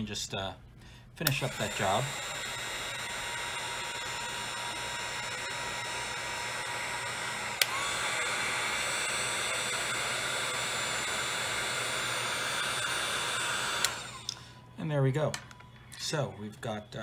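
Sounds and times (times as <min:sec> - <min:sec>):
hot-air blower whining hiss: 0:01.1 - 0:14.8
blower switch click: 0:01.2 - 0:05.1, 0:07.5 - 0:08.2, 0:13.7 - 0:14.4.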